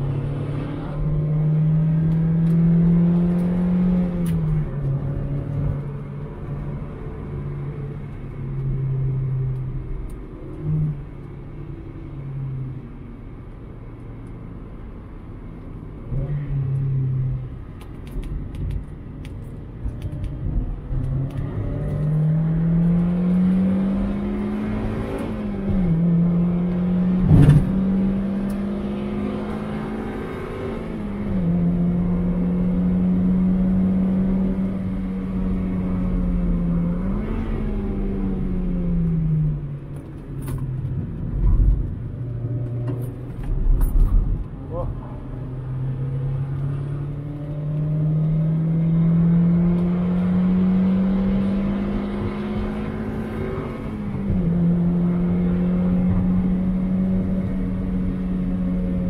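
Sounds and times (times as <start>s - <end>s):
car engine revving: 0.0s - 6.8s, 20.2s - 59.0s.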